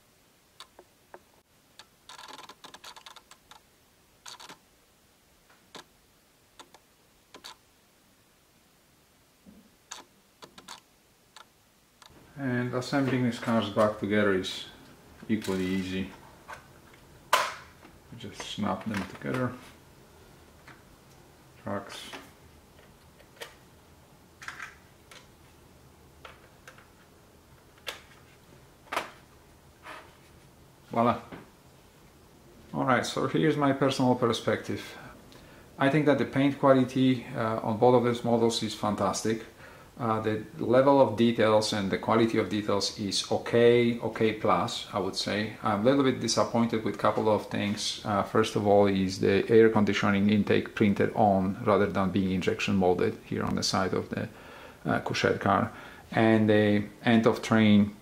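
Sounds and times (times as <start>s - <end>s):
small clicks: 0.6s - 1.2s, 1.8s - 3.6s, 4.2s - 4.6s, 6.6s - 7.6s, 9.9s - 12.1s
scraping rustles: 15.2s - 17.0s.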